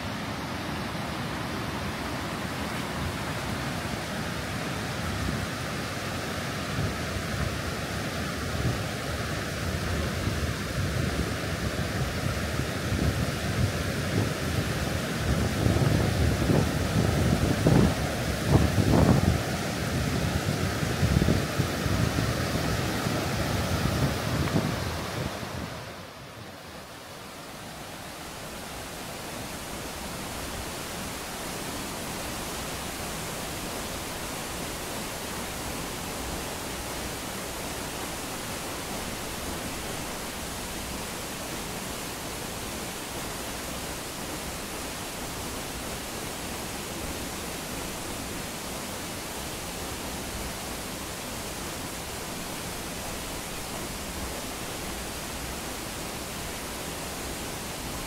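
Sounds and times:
waterfall rushing: 0.0 - 58.0.

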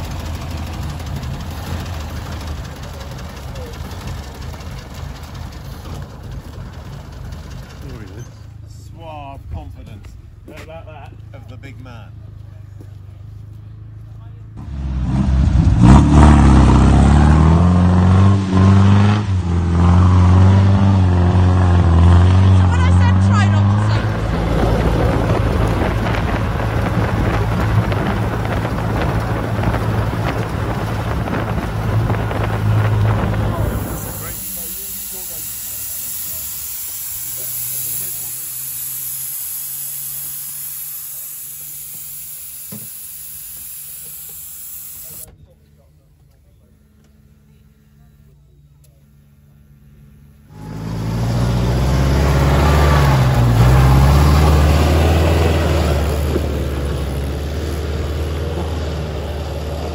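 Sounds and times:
car engine revving hard: 14.6 - 40.6, 50.5 - 59.9
air hissing from tyre valve: 33.6 - 45.3.

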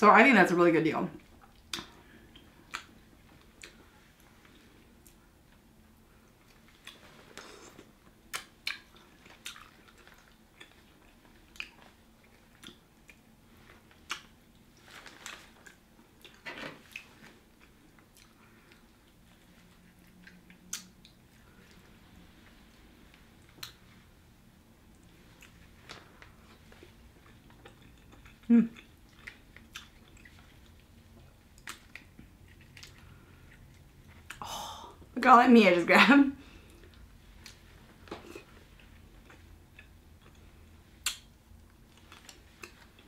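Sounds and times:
chewing and biting: 6.3 - 21.9, 24.9 - 34.4.

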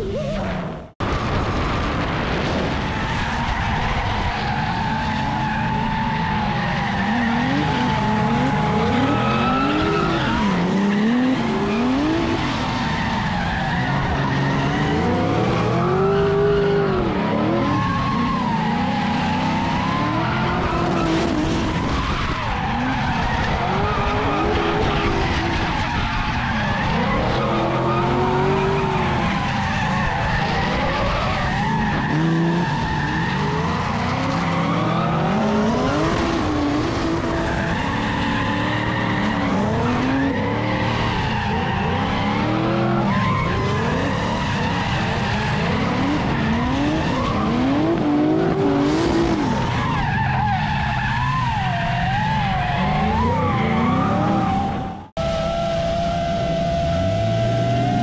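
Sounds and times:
car engines revving: 0.0 - 58.0.

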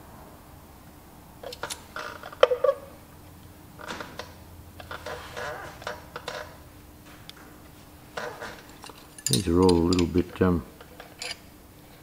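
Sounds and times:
spanners clinking on metal nuts: 8.6 - 10.4, 11.0 - 11.5.

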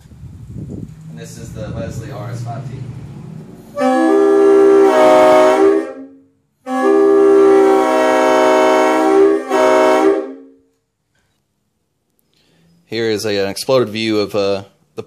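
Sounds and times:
air train horn blasts: 3.6 - 10.8.

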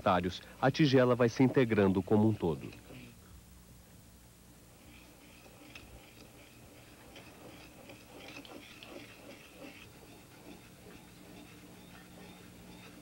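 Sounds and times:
low steady hum: 0.0 - 13.0
wet dabbing of glaze: 4.8 - 13.0.

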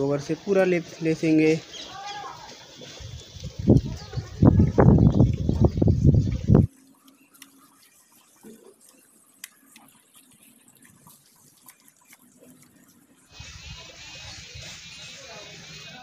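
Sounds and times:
small clicks: 7.0 - 12.9.

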